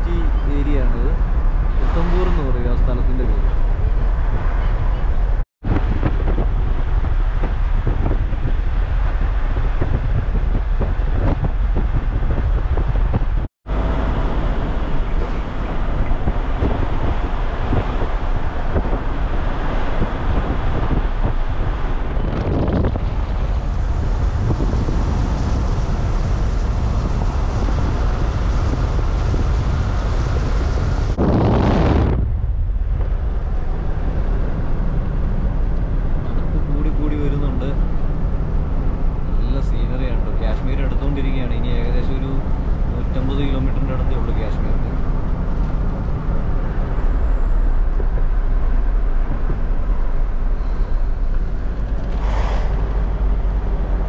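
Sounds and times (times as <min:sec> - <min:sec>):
road rumble: 0:00.0 - 0:54.0
wind buffeting microphone: 0:00.0 - 0:54.0
brief whoosh: 0:50.5 - 0:53.9.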